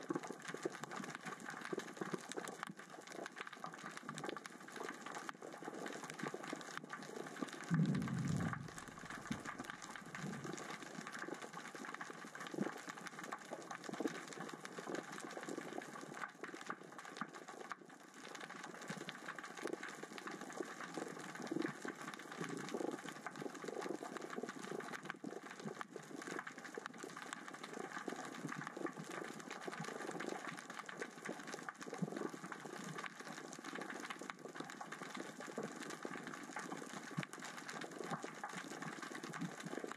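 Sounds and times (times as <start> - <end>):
underwater rocks crackling and clicking: 0.0 - 39.9
low underwater thump: 7.7 - 9.5.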